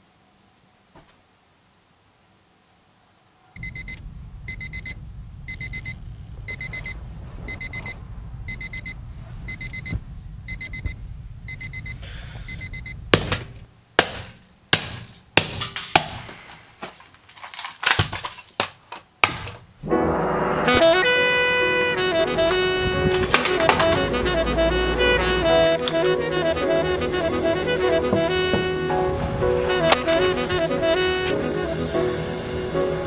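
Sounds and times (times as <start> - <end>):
alarm clock beeping: 3.6 - 13.0
low rumble: 3.6 - 13.7, 21.9 - 31.0.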